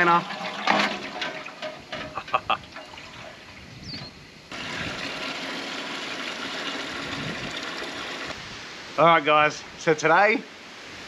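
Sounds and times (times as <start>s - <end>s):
hose water pouring into pot: 0.0s - 3.7s, 4.5s - 8.4s.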